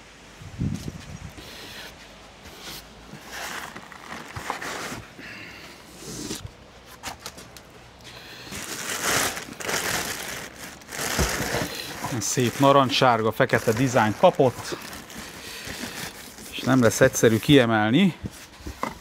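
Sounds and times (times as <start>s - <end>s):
cardboard and foam rustling: 1.9s - 19.0s
plastic bag crinkling: 3.2s - 5.2s, 8.2s - 17.7s.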